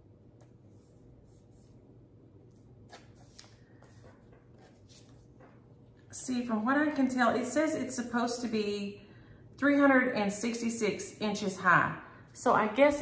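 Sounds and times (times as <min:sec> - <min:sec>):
low room hum: 0:00.0 - 0:13.0
paper rustling: 0:02.5 - 0:05.7.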